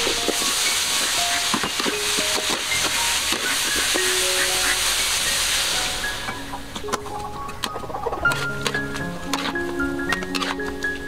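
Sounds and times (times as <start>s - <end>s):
steam hiss: 0.0s - 7.0s
hot oil sizzling: 0.0s - 11.0s.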